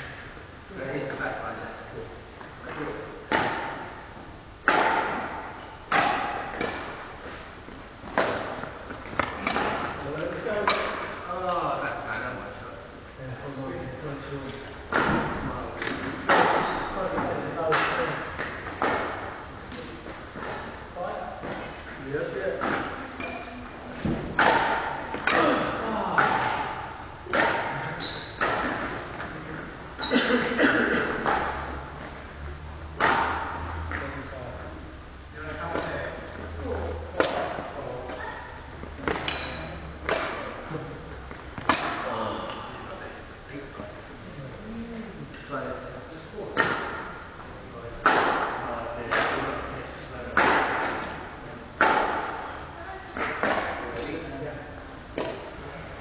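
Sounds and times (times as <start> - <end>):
rackets hitting a shuttlecock: 3.3 - 4.0, 4.6 - 7.4, 8.0 - 11.2, 14.9 - 20.8, 22.6 - 30.1, 33.0 - 34.1, 37.1 - 38.3, 39.0 - 42.8, 46.6 - 47.2, 48.0 - 49.6, 50.3 - 52.6, 53.2 - 54.1, 55.1 - 55.5
badminton shuttle smacks echoing: 4.6 - 7.0, 24.2 - 29.2.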